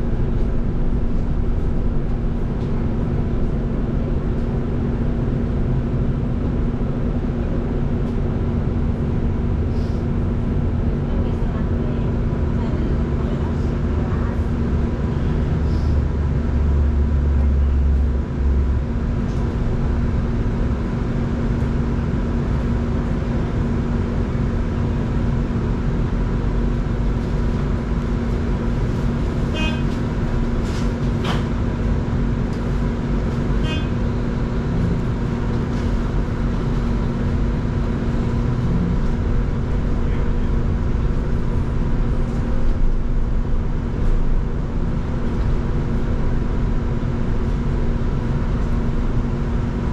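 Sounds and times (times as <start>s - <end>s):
bus road rumble: 0.0s - 49.9s.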